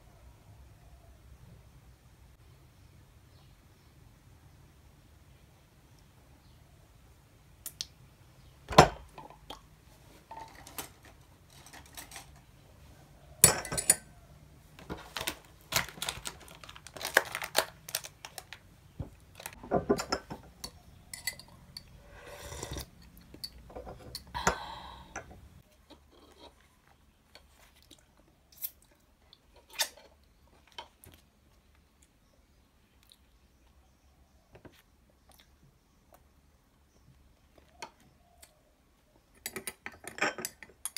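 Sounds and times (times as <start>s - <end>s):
tableware clinking and knocking: 13.4s - 14.2s, 19.6s - 21.9s, 39.4s - 40.9s
plastic food pack crinkling: 14.9s - 19.6s.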